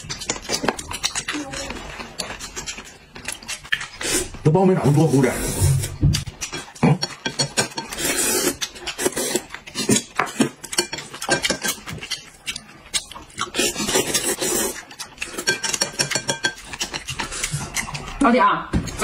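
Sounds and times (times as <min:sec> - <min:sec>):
chewing and lip-smacking: 0:00.0 - 0:04.4, 0:06.1 - 0:18.2
slurping: 0:00.0 - 0:18.2
chopsticks clicking against dishes: 0:06.2 - 0:09.1, 0:14.8 - 0:18.2.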